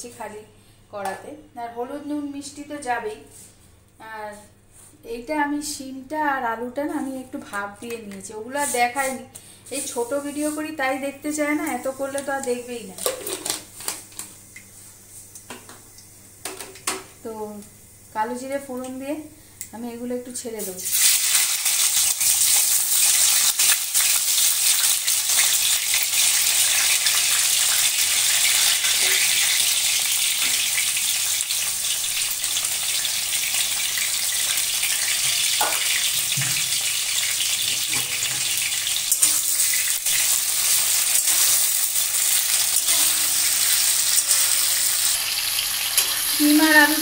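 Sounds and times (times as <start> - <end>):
vegetables sizzling in hot oil: 20.4 - 47.0.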